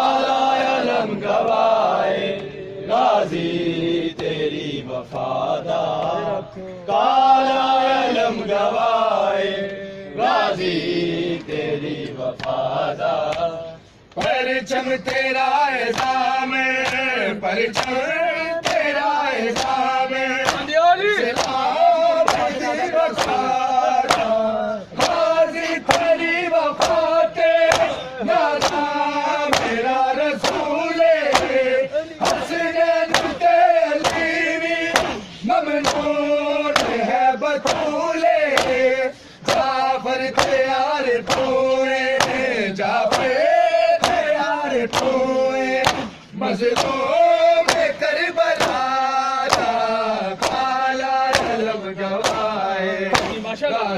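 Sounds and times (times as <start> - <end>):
men chanting together: 0.0 - 53.9
hands slapping chests: 12.4 - 12.6, 13.3 - 13.5, 15.9 - 16.2, 17.8 - 18.0, 18.6 - 20.7, 21.3 - 24.4, 25.0 - 26.2, 26.8 - 31.6, 32.2 - 38.8, 39.4 - 39.8, 40.4 - 40.6, 41.2 - 41.6, 42.2 - 42.5, 43.1 - 43.4, 44.0 - 45.2, 45.8 - 46.2, 46.8 - 47.0, 47.6 - 48.0, 48.6 - 53.5.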